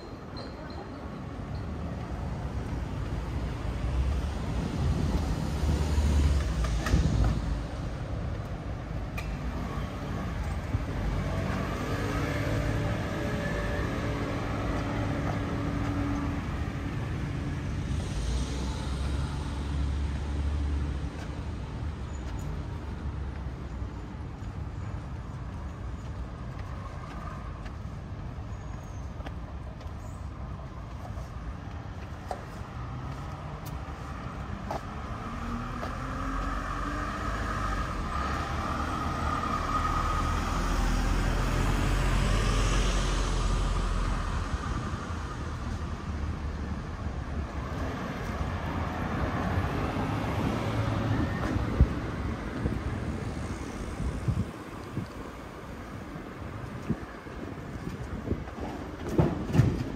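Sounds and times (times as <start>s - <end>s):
traffic rumble: 0.0s - 59.9s
wind rumbling on microphone: 43.6s - 59.9s.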